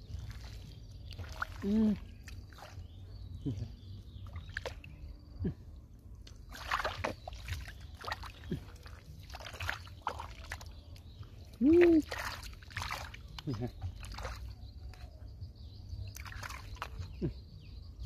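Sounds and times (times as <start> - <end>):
hands splashing in muddy puddle: 0.1 - 2.9, 4.3 - 4.9, 6.3 - 15.0, 16.1 - 17.2.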